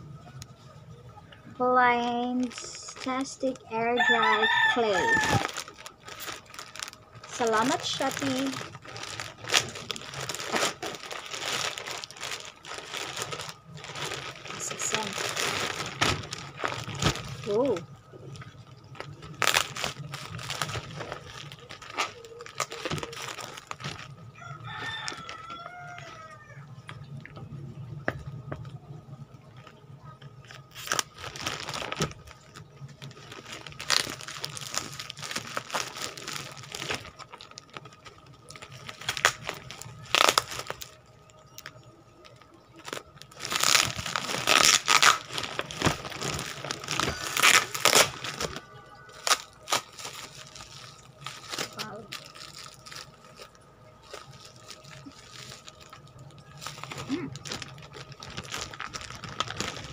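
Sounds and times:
plastic packaging crinkling: 1.3s - 59.9s
rooster crowing: 3.8s - 5.6s, 24.3s - 26.8s, 48.5s - 49.6s.

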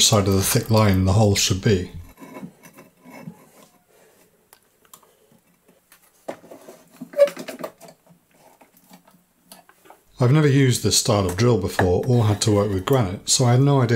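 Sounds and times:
faint handling noises: 2.1s - 10.1s.

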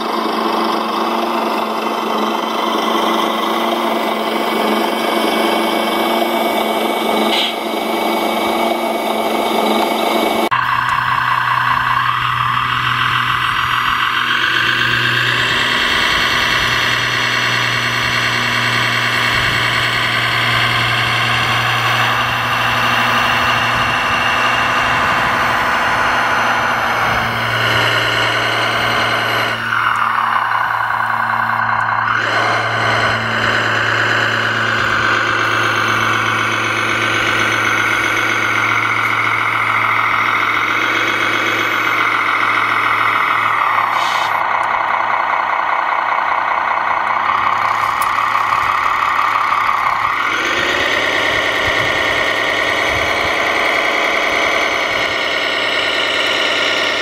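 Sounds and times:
model crane motor whine: 0.0s - 57.0s.

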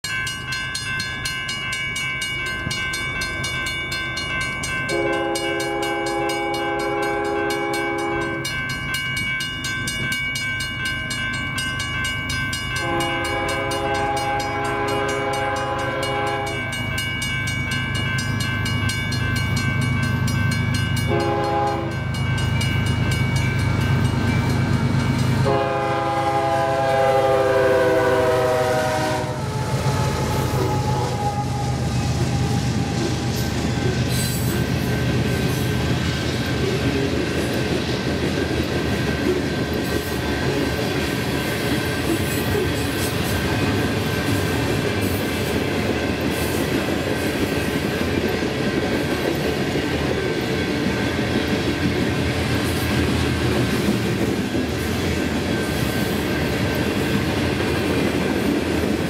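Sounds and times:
train wheels clickety-clack: 0.3s - 29.1s, 30.0s - 59.0s
locomotive horn blasts: 4.9s - 8.5s, 12.8s - 16.7s, 21.1s - 22.0s, 25.4s - 33.8s.

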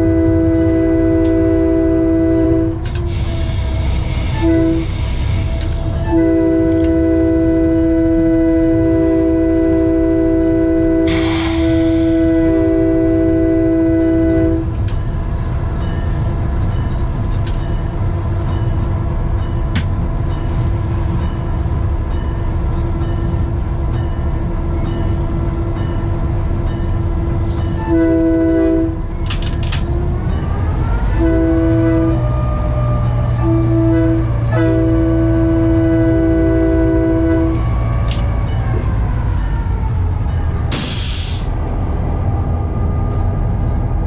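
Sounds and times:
locomotive air horn: 0.0s - 14.9s, 27.5s - 29.1s, 30.7s - 39.9s
locomotive engine rumble: 0.0s - 44.0s.

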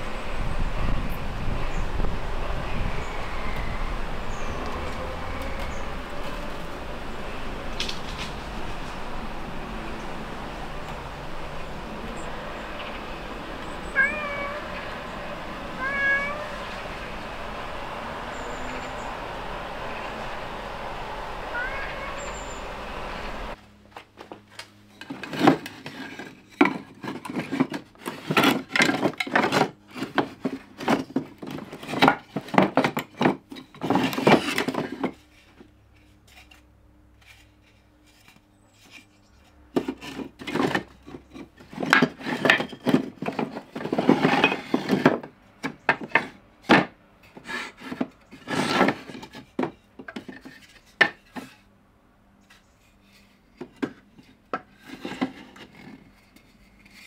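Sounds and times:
wooden offcuts clattering: 23.9s - 51.6s, 52.5s - 57.0s.

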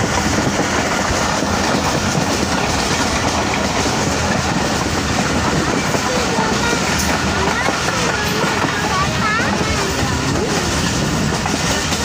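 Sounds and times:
train wheels on rails: 0.0s - 12.0s.

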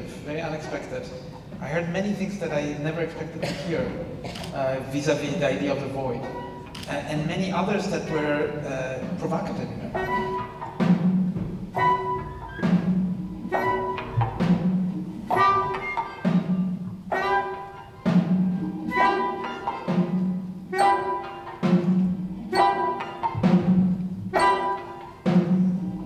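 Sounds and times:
pitched percussion melody: 0.0s - 26.0s
low drum strokes: 1.2s - 20.8s, 21.6s - 22.7s
repeating percussion pattern: 9.8s - 26.0s
flute melody: 9.9s - 10.8s, 11.7s - 26.0s.

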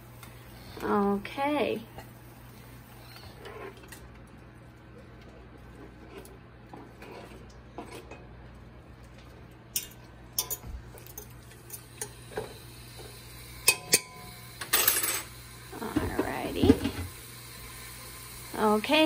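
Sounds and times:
knife clinking against pot: 9.8s - 12.2s, 13.7s - 14.2s.

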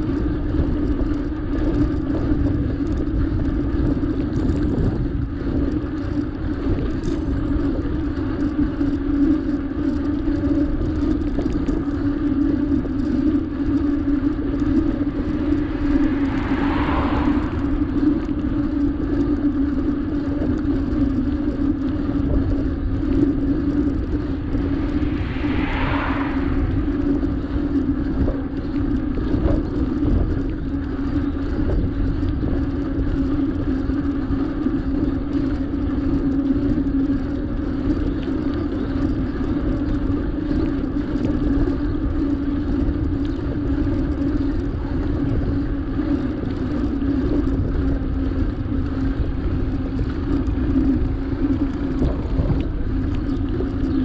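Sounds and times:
steady low hum: 0.0s - 54.0s
wind and road rumble: 0.0s - 54.0s
hissing swishes: 14.7s - 18.9s.

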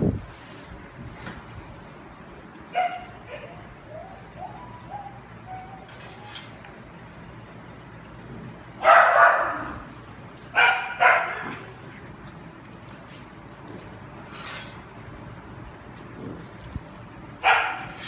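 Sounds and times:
dog barking: 2.8s - 3.4s, 8.8s - 9.7s, 10.6s - 11.4s, 17.4s - 18.0s.

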